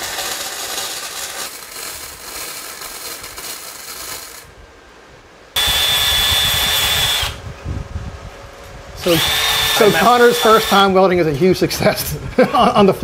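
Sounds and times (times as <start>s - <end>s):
welder arc crackling: 0.0s - 4.6s, 5.6s - 7.4s, 9.0s - 11.1s
power tool high whine: 5.6s - 7.4s, 9.0s - 10.9s.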